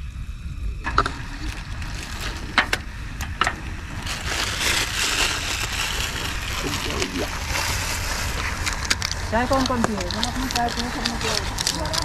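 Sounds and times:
wind rumbling on microphone: 0.0s - 12.0s
plastic bag crinkling: 4.0s - 12.0s.

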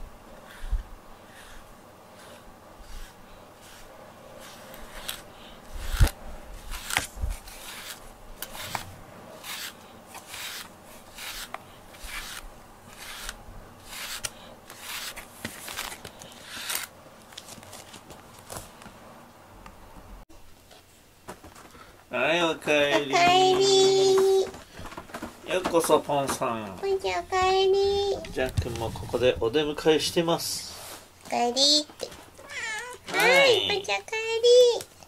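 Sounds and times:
brush scratching through cat fur: 0.4s - 16.9s.

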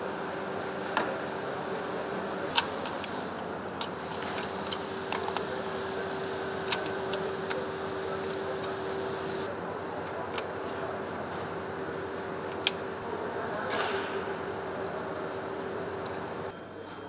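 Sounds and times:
factory hum: 0.0s - 17.0s
electrical connectors snapping: 3.8s - 9.5s.

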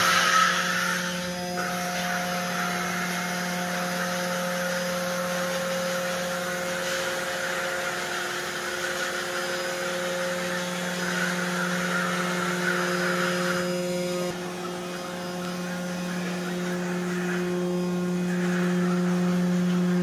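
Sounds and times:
robot motors humming and whirring: 0.0s - 20.0s.

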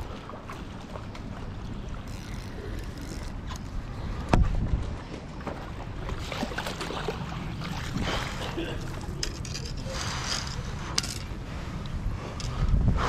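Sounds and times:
choppy water: 0.0s - 13.0s
wind rumble on microphone: 1.7s - 6.0s, 7.2s - 13.0s.

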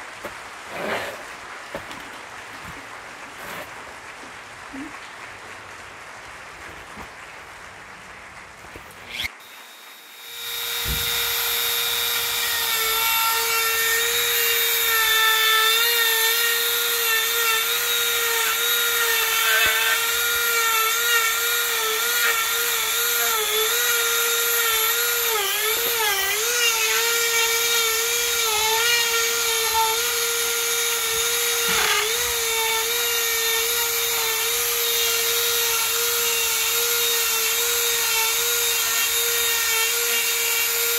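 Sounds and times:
bit grinding into wood: 0.7s - 1.9s, 9.1s - 9.3s, 9.9s - 40.9s
rotary tool whine: 9.1s - 40.9s.

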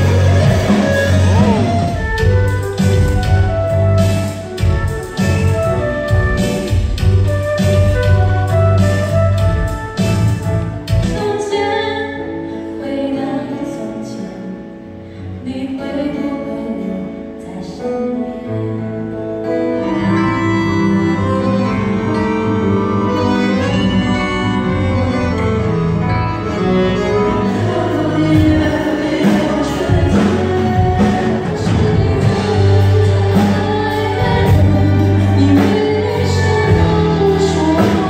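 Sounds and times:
string ensemble: 0.0s - 7.3s, 19.3s - 38.0s
flute over electronic backing: 0.0s - 12.0s, 19.4s - 38.0s
woman singing: 11.0s - 20.4s, 27.3s - 38.0s.

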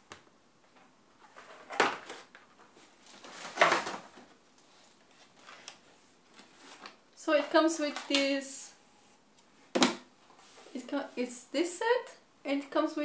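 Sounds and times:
packaging rustling: 1.2s - 7.0s.

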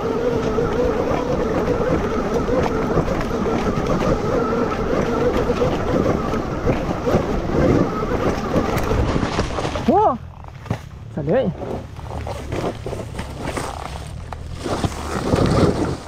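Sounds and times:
electric motorcycle motor whine: 0.0s - 10.6s.

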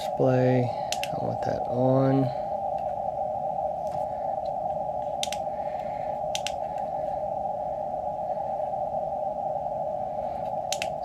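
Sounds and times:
radio band noise hiss: 0.0s - 7.6s.

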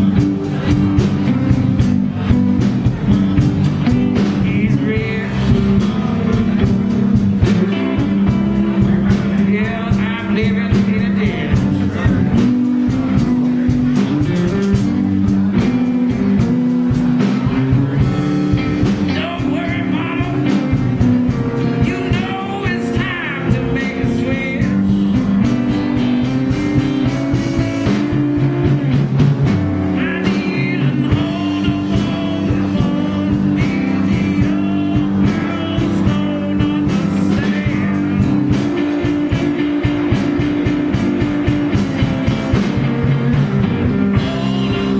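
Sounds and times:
electric guitar lead bending: 0.0s - 44.9s
live blues band playing: 0.0s - 44.9s.

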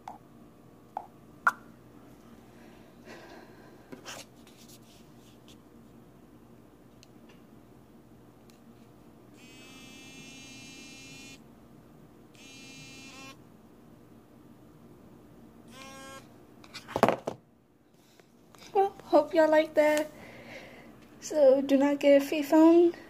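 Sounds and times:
mobile phone buzzing: 9.4s - 11.4s, 12.4s - 13.4s, 15.7s - 16.3s.

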